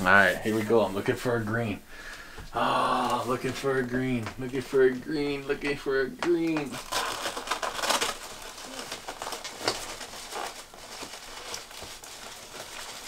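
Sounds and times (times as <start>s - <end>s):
fingers rustling and tapping paper: 5.6s - 13.0s
paper crinkling and tearing: 6.4s - 13.0s.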